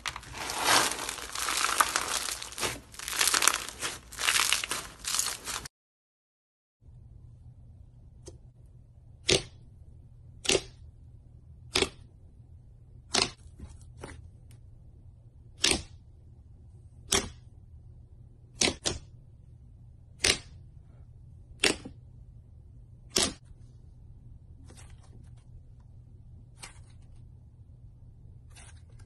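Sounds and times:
slime popping: 0.0 - 5.7.

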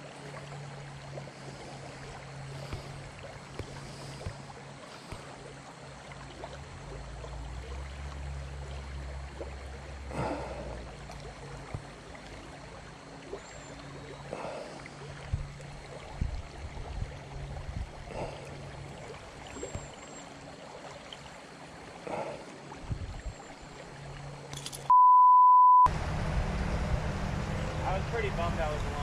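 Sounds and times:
river water over rocks: 0.0 - 24.9, 25.9 - 29.0
electronic beep: 24.9 - 25.9.

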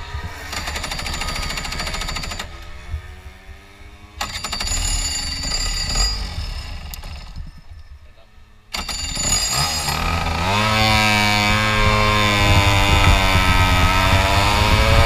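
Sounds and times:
kart engine rattling bursts: 0.0 - 8.0, 8.7 - 15.0.

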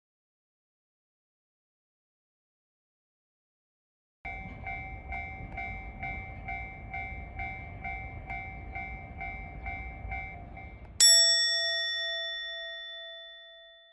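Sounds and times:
low rumble: 4.3 - 11.0
level crossing bell ringing: 4.3 - 13.9
loud bright chime: 4.3 - 13.9.

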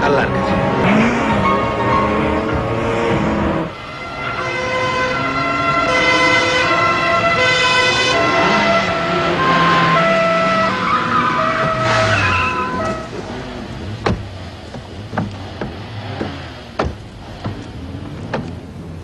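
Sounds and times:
car engines revving: 0.0 - 19.0
two-tone sirens: 0.3 - 13.5.

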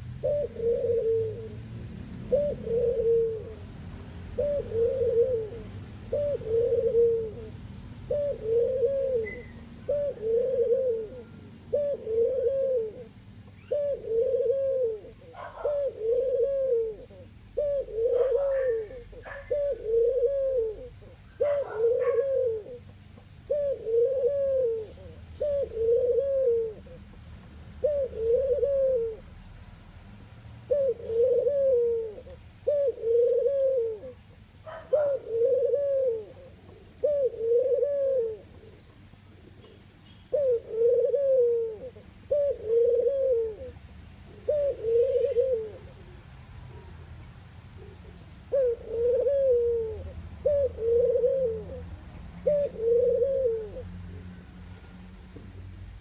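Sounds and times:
dove cooing: 0.0 - 29.4, 30.6 - 54.3.

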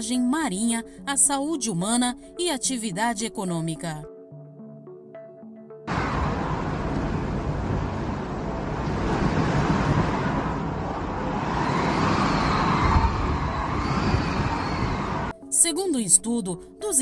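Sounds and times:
wind buffeting microphone: 5.9 - 15.3.

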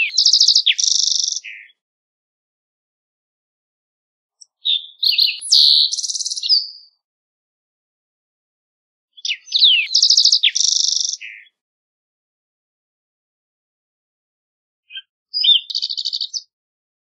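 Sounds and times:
bird song with trills: 0.0 - 1.8, 4.4 - 7.0, 9.1 - 11.6, 14.9 - 16.6.

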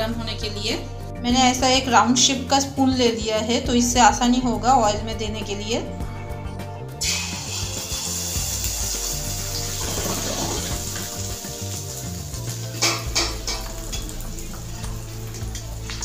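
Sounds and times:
batter sizzling in hot oil: 7.0 - 16.0
spatula knocking on pan: 12.8 - 13.7.

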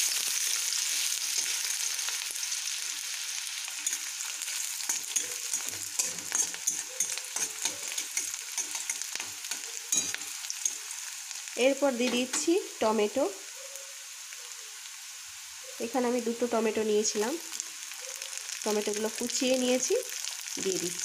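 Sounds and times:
onions sizzling in oil: 0.0 - 21.0
spatula scraping and tapping pan: 3.7 - 10.9, 12.0 - 12.5.

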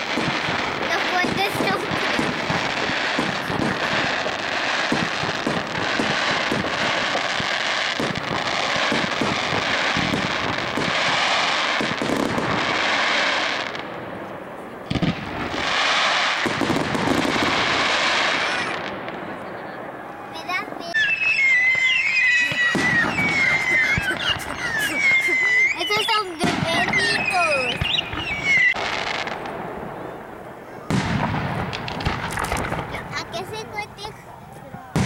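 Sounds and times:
sharp firework bang: 0.0 - 12.7, 22.4 - 24.9, 25.8 - 29.8, 30.8 - 33.1
fireworks crackling and hissing: 0.0 - 35.0.

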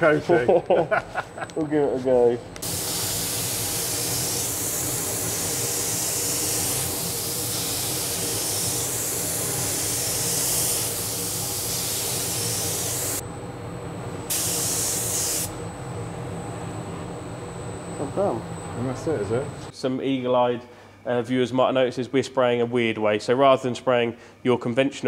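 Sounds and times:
steady low hum: 0.0 - 19.9
spray gun hissing: 2.6 - 13.2, 14.3 - 15.5.

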